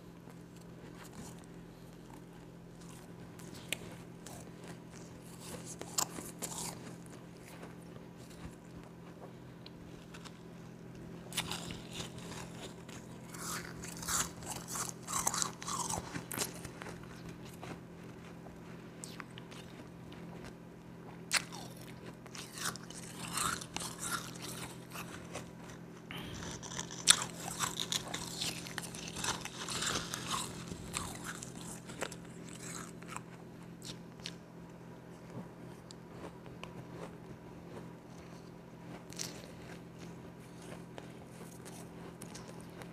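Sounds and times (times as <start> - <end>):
chewing crunchy ice: 0.3 - 9.0, 9.6 - 20.6, 21.2 - 42.9.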